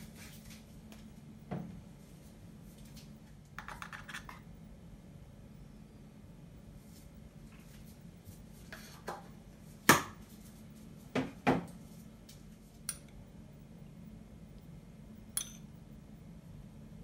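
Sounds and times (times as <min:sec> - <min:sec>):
spoon tapping small bowl: 0:15.4 - 0:15.7.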